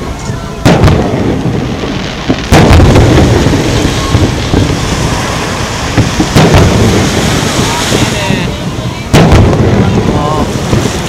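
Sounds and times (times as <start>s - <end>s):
firework shells booming: 0.0s - 11.0s.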